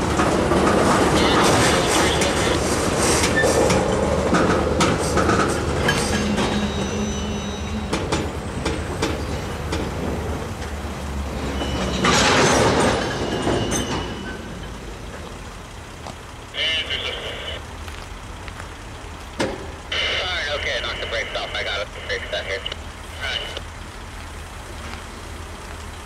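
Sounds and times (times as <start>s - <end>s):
train wheels clicking over rail joints: 0.0s - 16.6s, 17.8s - 19.9s
high wheel squeals: 0.9s - 15.0s.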